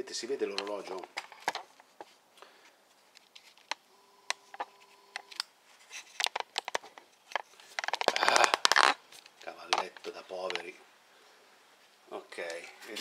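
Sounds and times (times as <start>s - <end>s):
faint two-pitch hum: 3.8s - 5.4s.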